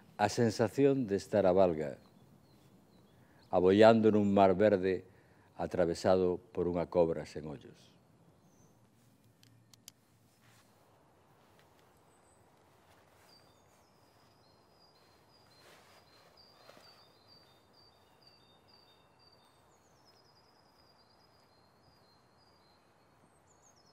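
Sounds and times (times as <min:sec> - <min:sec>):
birds chirping and trilling: 0:11.8 - 0:23.9.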